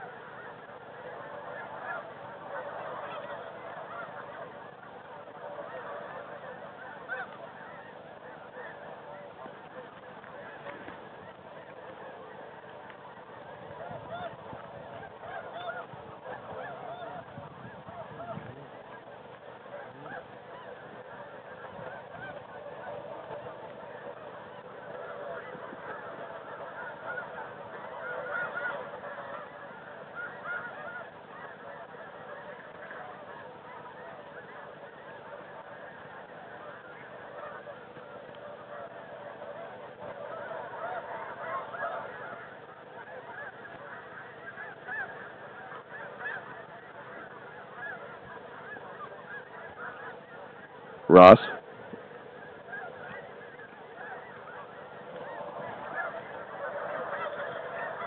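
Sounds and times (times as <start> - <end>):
geese honking: 0.0 - 58.0.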